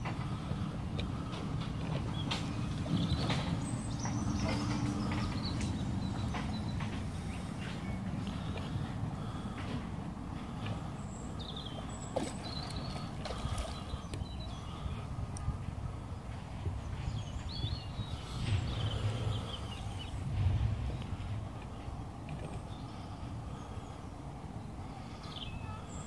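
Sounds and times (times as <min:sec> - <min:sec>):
small birds chirping: 0:00.0 - 0:09.6, 0:10.4 - 0:20.4, 0:22.4 - 0:26.0
wind rumbling on microphone: 0:00.0 - 0:26.0.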